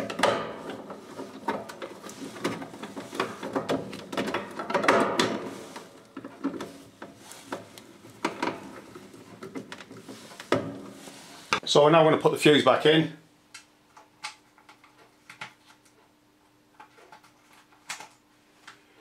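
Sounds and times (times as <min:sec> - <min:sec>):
casing scraping and rubbing: 0:05.4 - 0:11.6.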